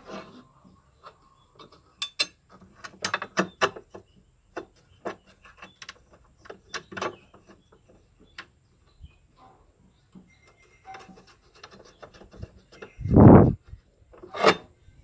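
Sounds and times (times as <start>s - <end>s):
metal parts clicking and knocking: 1.6s - 8.5s.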